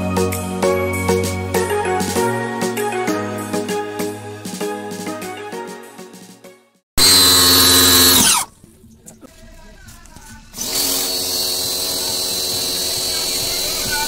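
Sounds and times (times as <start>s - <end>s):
pressure washer motor: 7.0s - 8.5s, 10.6s - 14.0s.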